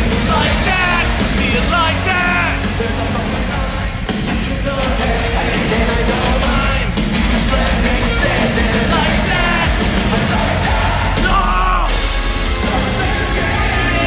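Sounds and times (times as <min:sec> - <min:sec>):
person singing: 0:00.0 - 0:12.0, 0:12.6 - 0:14.0
distorted electric guitars: 0:00.0 - 0:14.0
drums: 0:00.0 - 0:14.0.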